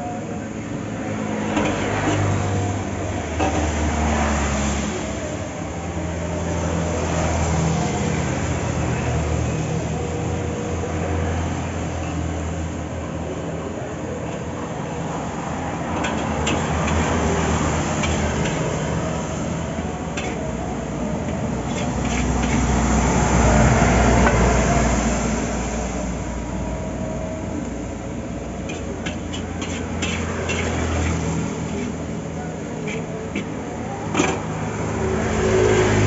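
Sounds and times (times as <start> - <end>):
road traffic rumble: 0.0 - 36.0
heavy vehicle passing: 15.0 - 36.0
metal spatula scraping a wok: 16.0 - 19.4, 20.1 - 20.4, 21.2 - 23.1, 28.6 - 32.2, 32.8 - 34.4.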